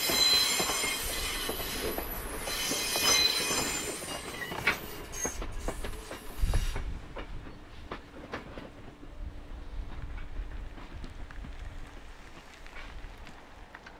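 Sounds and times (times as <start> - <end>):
train wheels squealing: 0.0 - 8.1
train wheels clicking over rail joints: 0.0 - 13.9
wind buffeting microphone: 5.4 - 13.9.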